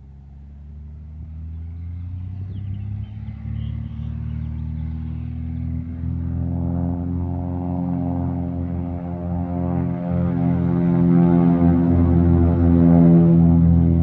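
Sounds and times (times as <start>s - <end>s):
propeller engine revving up: 0.0s - 14.0s.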